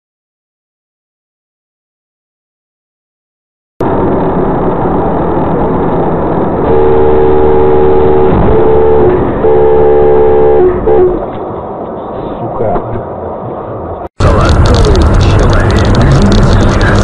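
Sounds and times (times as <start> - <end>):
traffic and engine noise: 3.8 - 17.0
car horn honking: 6.7 - 11.2.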